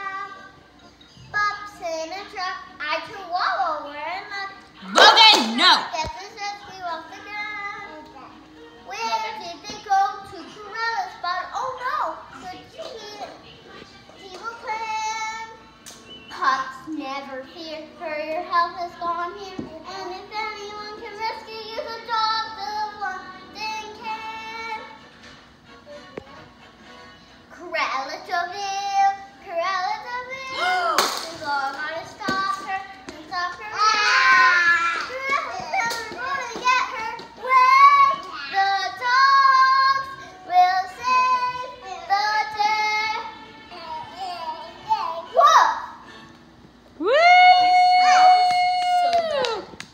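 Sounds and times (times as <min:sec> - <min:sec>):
girl singing: 0:00.0 - 0:00.6, 0:06.0 - 0:08.3, 0:16.3 - 0:25.0, 0:27.5 - 0:46.0.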